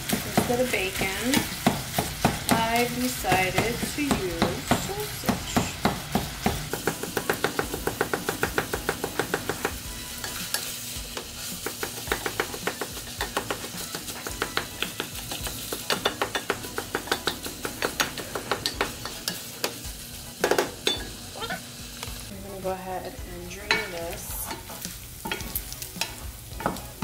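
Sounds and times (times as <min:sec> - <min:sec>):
sausage sizzling in a pan: 0:00.0 - 0:27.0
utensil tapping against pan: 0:00.1 - 0:19.8.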